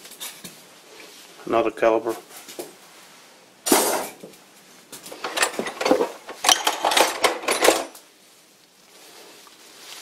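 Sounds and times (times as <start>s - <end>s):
metal parts clinking and rattling: 5.1s - 8.0s.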